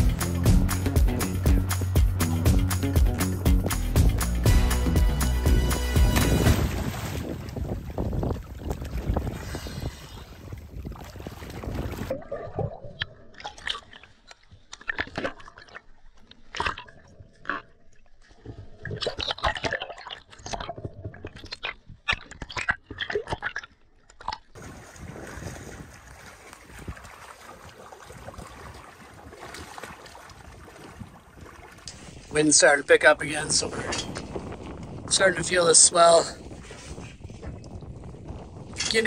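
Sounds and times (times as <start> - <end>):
wind and choppy water: 0.0 - 23.6, 24.5 - 39.0
underwater bubbles and clicks: 10.8 - 24.6, 37.3 - 39.0.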